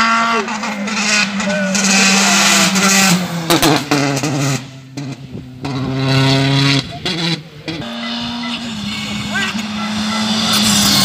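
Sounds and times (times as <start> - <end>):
rally car engine at high revs: 0.0 - 11.0.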